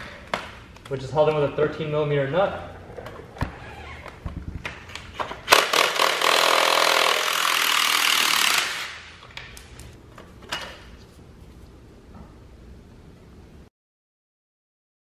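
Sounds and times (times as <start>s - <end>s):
cordless power tool running: 5.5s - 9.0s.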